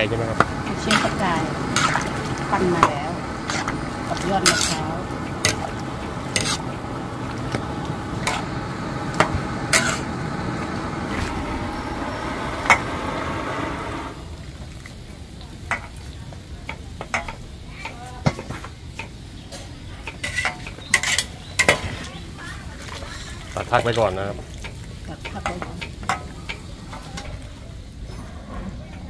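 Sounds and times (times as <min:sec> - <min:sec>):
food sizzling in a pan: 0:00.0 - 0:28.0
spatula scraping and knocking pan: 0:00.4 - 0:06.9, 0:07.5 - 0:10.1, 0:20.0 - 0:22.0.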